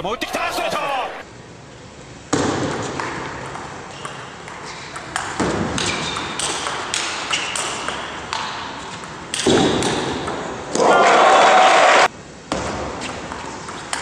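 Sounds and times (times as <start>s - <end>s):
ping pong ball clicking: 3.0s - 10.4s.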